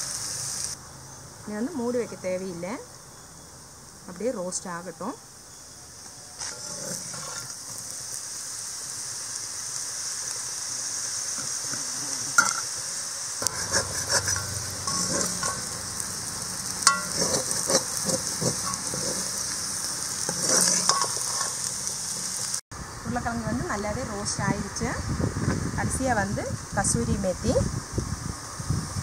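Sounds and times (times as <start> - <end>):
potatoes sizzling in oil: 0.0 - 0.8, 3.9 - 22.6, 23.2 - 29.0
metal ladle scraping pan: 6.4 - 7.6, 13.4 - 16.1, 16.7 - 22.3.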